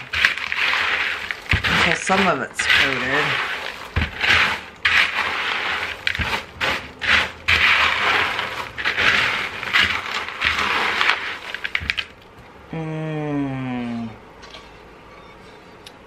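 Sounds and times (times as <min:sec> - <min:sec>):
spatula scraping cereal in bowl: 0:00.0 - 0:12.2.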